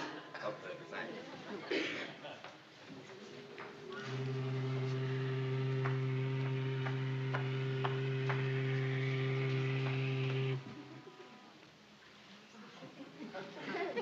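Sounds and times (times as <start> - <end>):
ship's horn low blast: 3.1 - 11.6.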